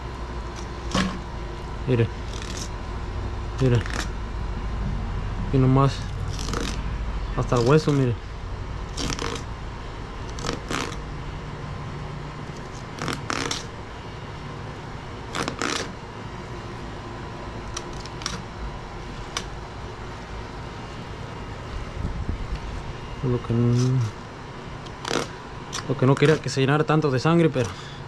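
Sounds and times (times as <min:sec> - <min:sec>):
faint steady hum: 0:00.0 - 0:28.0
knife scraping meat from bone: 0:02.3 - 0:02.7, 0:03.6 - 0:04.1, 0:06.3 - 0:06.8, 0:08.9 - 0:09.5, 0:10.3 - 0:11.0.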